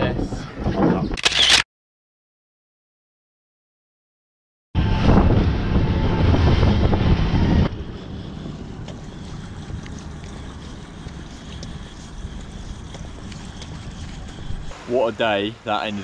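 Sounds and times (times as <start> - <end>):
wind buffeting microphone: 4.8 - 16.0
water hiss: 13.0 - 16.0.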